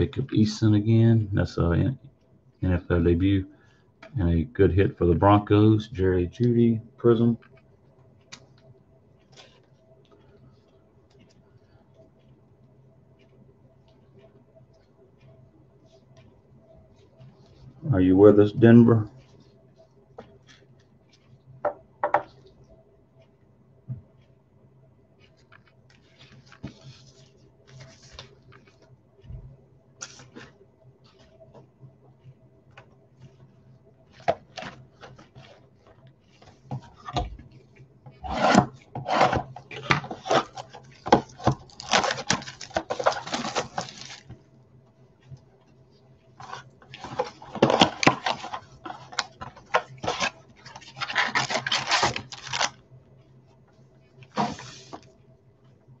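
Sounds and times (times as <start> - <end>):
cardboard rubbing: 34.2 - 44.4, 46.4 - 52.7, 54.3 - 55.1
wrapper crackling: 41.4 - 44.2, 50.9 - 52.8.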